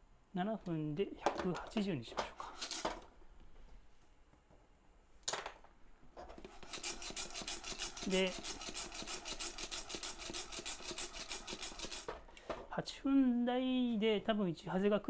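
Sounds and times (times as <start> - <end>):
coffee beans rattling in a pan: 6.6 - 12.1.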